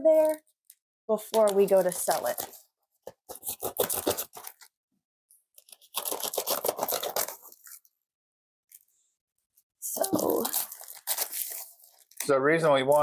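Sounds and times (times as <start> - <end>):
packing tape ripping off cardboard: 1.4 - 4.7, 5.6 - 7.9, 10.0 - 12.3.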